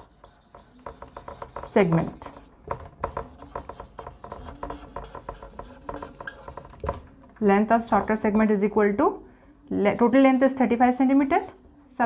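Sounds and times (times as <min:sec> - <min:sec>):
marker pen on whiteboard: 0:00.0 - 0:08.8.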